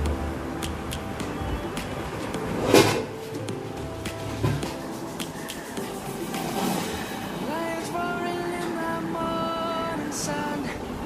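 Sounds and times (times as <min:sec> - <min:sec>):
background music with percussive hits: 0:00.0 - 0:07.5.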